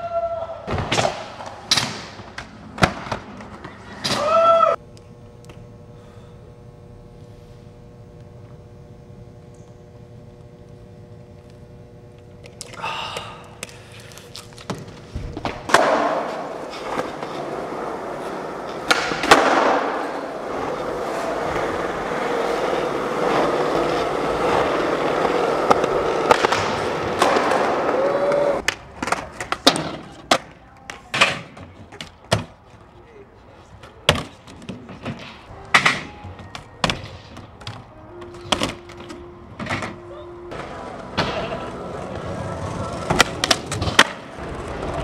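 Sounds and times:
skateboard wheels rolling on concrete: 0.0s - 4.8s, 13.4s - 45.0s
low steady hum: 1.1s - 45.0s
skateboard clacks: 14.6s - 32.6s, 40.5s - 45.0s.

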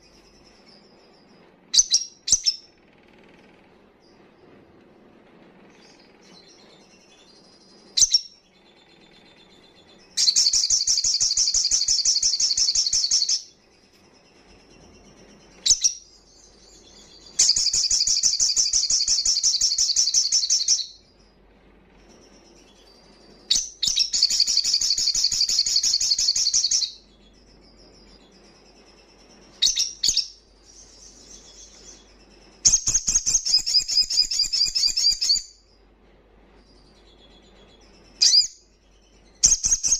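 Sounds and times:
bird high-pitched trills: 5.8s - 21.0s, 22.0s - 35.7s, 36.6s - 39.9s.

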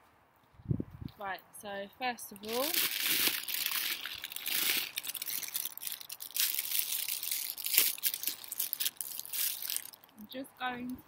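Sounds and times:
plastic bag crinkling: 2.4s - 10.2s.

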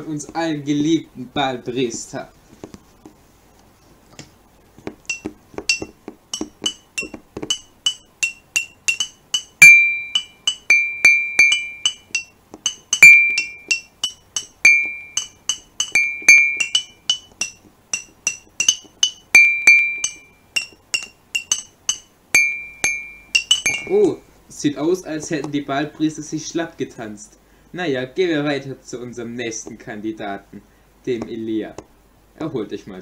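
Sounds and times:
glassy clinking percussion: 5.1s - 24.3s.

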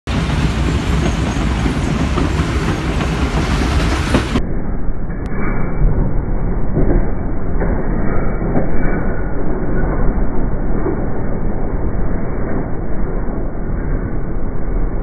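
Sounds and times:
train wheels rumbling on rail: 0.1s - 4.4s.

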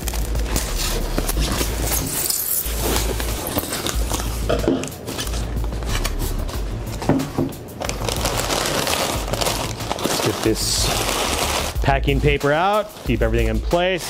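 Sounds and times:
packing tape pulled off: 0.0s - 6.4s, 7.8s - 11.8s.

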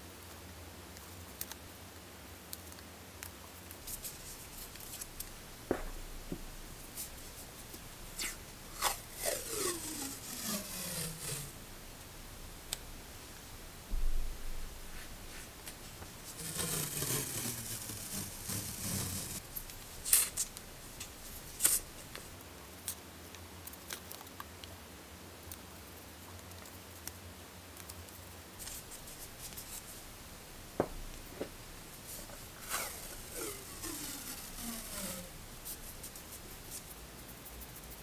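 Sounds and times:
sharp taps of tape rolls: 3.8s - 11.6s, 15.6s - 22.3s, 30.8s - 36.9s
tape peeling off roll: 3.8s - 12.0s, 15.0s - 22.4s, 30.8s - 36.9s.

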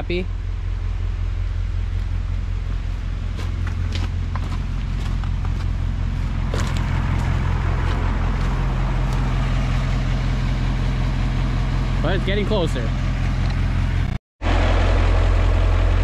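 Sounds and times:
tractor engine idling: 0.0s - 16.0s
footsteps on gravel: 1.9s - 9.6s.

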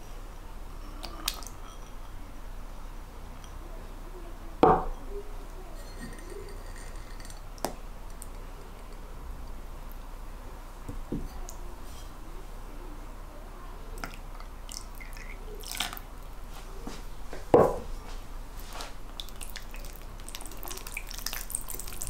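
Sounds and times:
glassware knocking and clinking: 1.4s - 2.2s, 4.6s - 5.1s, 5.8s - 7.5s.

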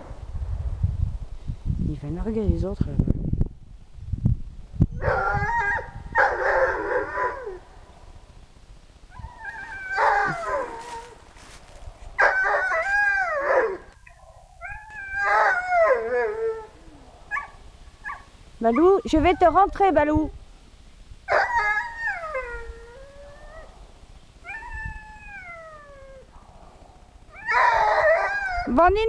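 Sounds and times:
dog howling and whining: 5.0s - 7.6s, 9.1s - 11.2s, 12.2s - 19.5s, 21.3s - 23.8s, 24.4s - 26.3s, 27.3s - 28.7s.

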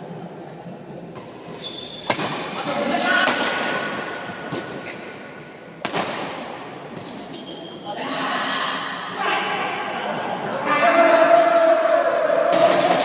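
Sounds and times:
rackets striking shuttlecock: 1.2s - 2.6s, 5.8s - 6.7s
spectators' voices: 7.8s - 13.0s.

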